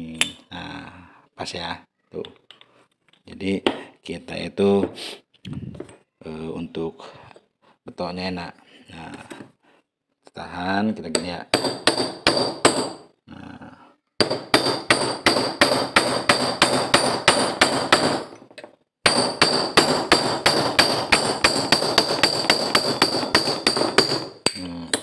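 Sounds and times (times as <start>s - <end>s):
hammer striking steel: 19.1s - 25.0s.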